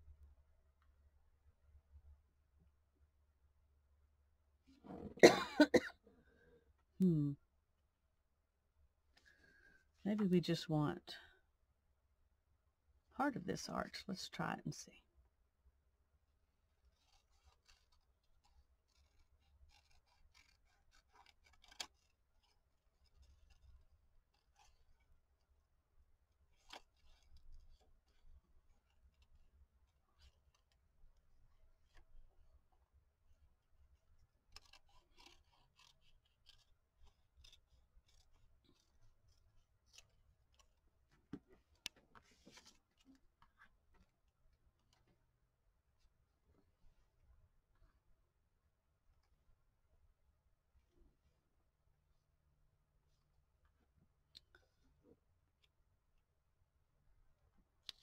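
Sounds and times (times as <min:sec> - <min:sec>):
scissors snipping paper: 0:16.8 - 0:32.3, 0:33.8 - 0:43.5
paper rustling: 0:34.5 - 0:44.2.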